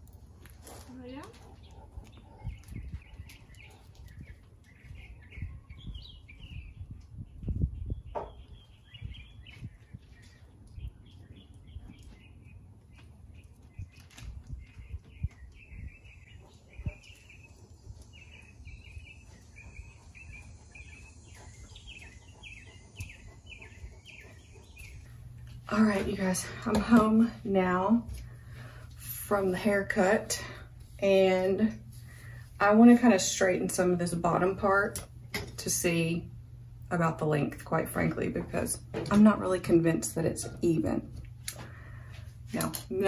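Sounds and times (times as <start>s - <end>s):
small birds chirping: 0.0s - 35.3s
wind buffeting microphone: 1.6s - 12.4s, 13.3s - 27.4s.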